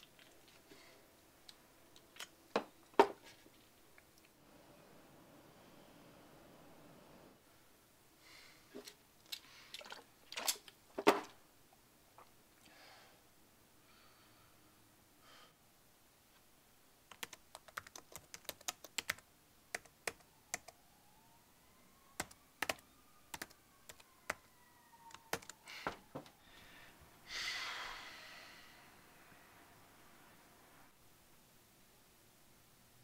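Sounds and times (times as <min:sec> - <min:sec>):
breathy rush of noise: 0:04.4 - 0:08.8, 0:25.6 - 0:31.0
typing on computer keyboard: 0:17.1 - 0:20.8, 0:22.2 - 0:24.4, 0:25.1 - 0:25.6.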